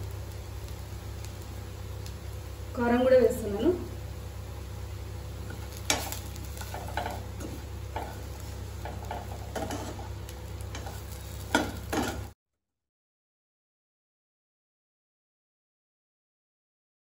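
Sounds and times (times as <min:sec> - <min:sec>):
steady low hum: 0:00.0 - 0:12.3
spoon scraping a pan: 0:05.5 - 0:12.3.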